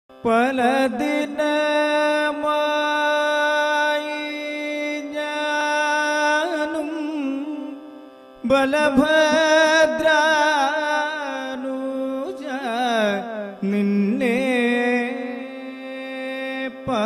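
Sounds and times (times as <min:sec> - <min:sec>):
man singing devotional song: 0:00.1 - 0:17.0.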